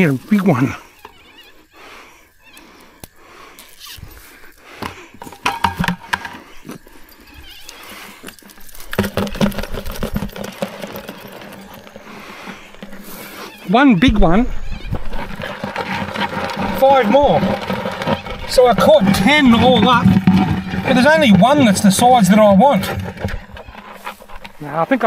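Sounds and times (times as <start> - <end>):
yabbies dropping into plastic bucket: 4.8 - 6.5, 8.7 - 13.5, 14.9 - 24.6
mesh net rustling and knocking: 4.9 - 6.4.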